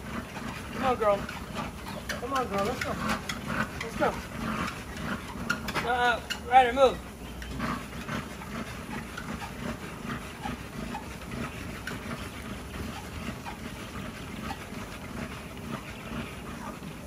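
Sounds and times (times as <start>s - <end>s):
dog panting: 0.0s - 6.4s, 7.4s - 17.0s
paws ticking on treadmill belt: 0.0s - 17.0s.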